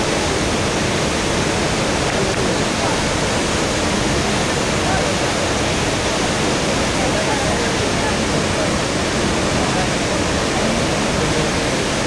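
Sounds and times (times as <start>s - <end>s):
river rapids: 0.0s - 12.0s
waterfall rushing: 0.0s - 12.0s.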